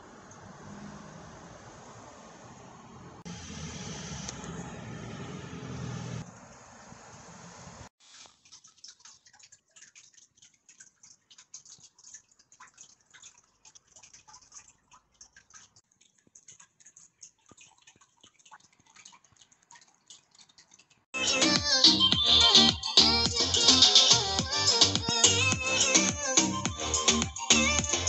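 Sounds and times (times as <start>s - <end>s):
faint traffic hum: 0.0s - 7.9s
small clicks and ticks: 8.1s - 21.1s.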